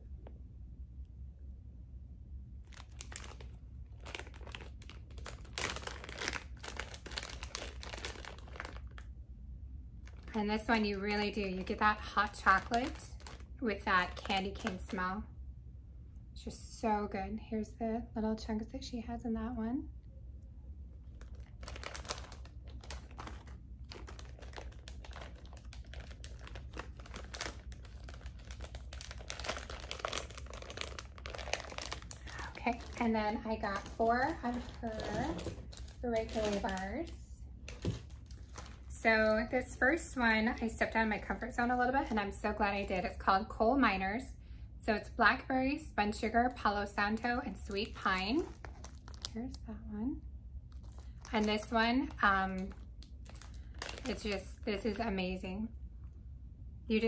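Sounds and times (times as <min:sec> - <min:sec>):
plastic bag crinkling: 0:02.6 - 0:09.1, 0:10.0 - 0:15.0, 0:21.0 - 0:40.9, 0:47.5 - 0:49.6, 0:50.7 - 0:54.9.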